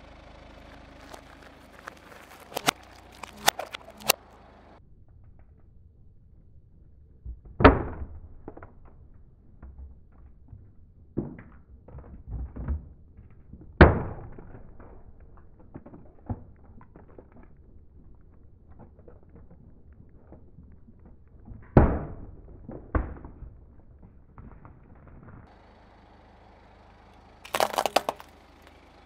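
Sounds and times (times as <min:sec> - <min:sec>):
plastic cups cracking under tyre: 0:00.6 - 0:04.2, 0:07.4 - 0:25.5, 0:27.4 - 0:28.8.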